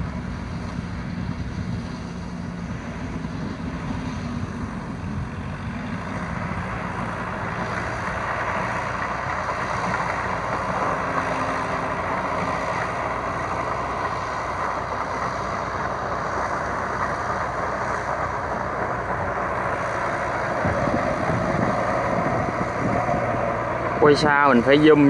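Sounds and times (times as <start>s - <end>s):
tractor diesel engine under load: 0.0s - 25.0s.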